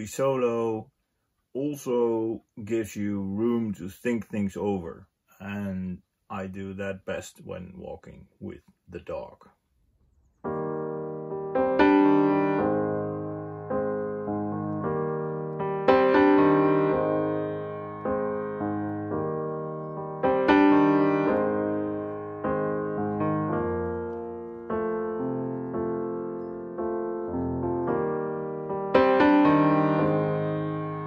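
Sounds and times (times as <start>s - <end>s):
solo piano music: 10.4s - 31.0s.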